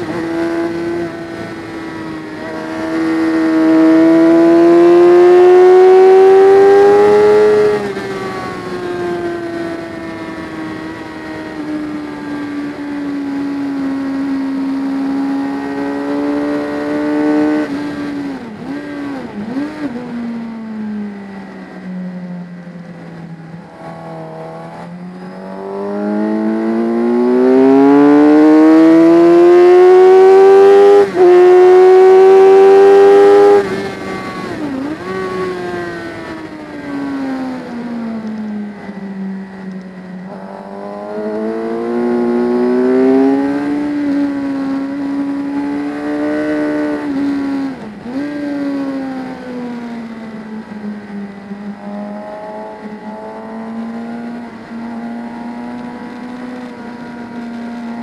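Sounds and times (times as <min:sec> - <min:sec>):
racing motorcycle engine revving: 0:00.0 - 0:21.8, 0:22.7 - 0:58.0.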